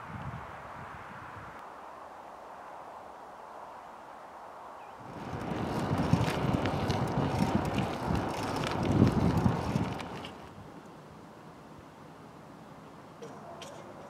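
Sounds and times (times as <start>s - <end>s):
wind buffeting the microphone: 0.0s - 1.6s, 5.0s - 10.8s
faint steady outdoor hiss: 0.0s - 14.0s.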